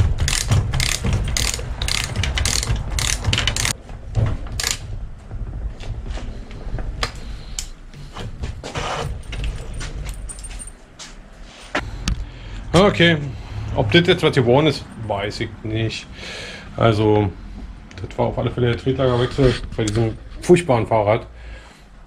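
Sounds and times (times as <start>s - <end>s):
ratchet wrench clicking: 0.2s - 3.8s, 4.6s - 4.8s
metal tools clinking: 0.3s - 3.8s, 8.8s - 11.8s.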